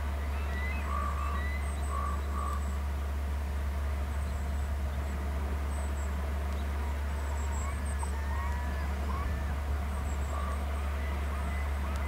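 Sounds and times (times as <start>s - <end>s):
low electrical hum: 0.0s - 12.0s
faint bird call notes: 0.1s - 2.8s.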